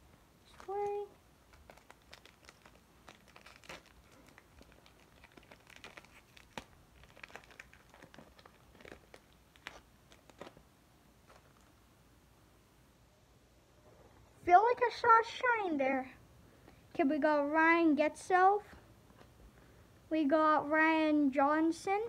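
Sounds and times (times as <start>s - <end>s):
foil wrapper crinkling and tearing: 0.5s - 11.8s.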